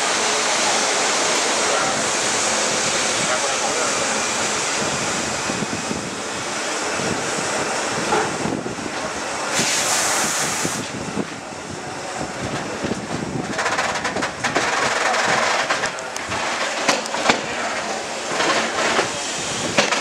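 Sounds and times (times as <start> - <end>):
wind buffeting microphone: 1.8 - 16.6, 18.4 - 20.0
brief hiss: 9.5 - 10.9.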